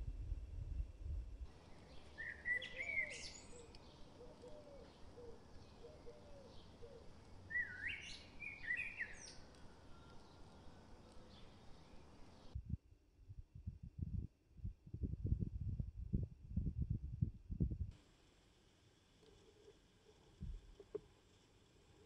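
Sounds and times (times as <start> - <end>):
fainter lower bird calls: 1.5 - 12.6
bird chirping: 1.6 - 12.6
low rumble: 12.5 - 17.9.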